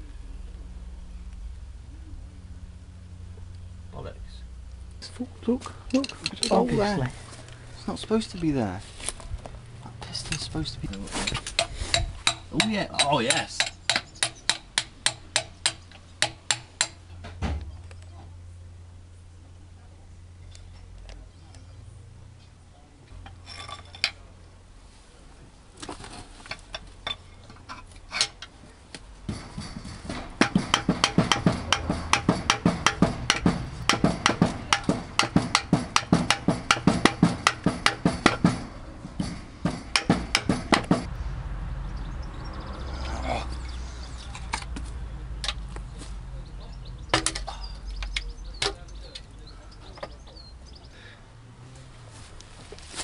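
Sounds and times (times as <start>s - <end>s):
steady low hum: 0.0s - 25.8s, 26.6s - 52.7s
metal tools tapping on metal: 5.9s - 6.8s, 10.3s - 17.0s, 29.3s - 41.1s.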